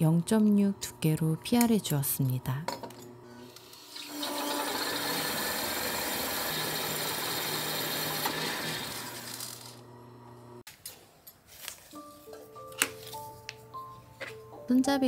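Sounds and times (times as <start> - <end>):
motor hum: 3.1 - 10.6.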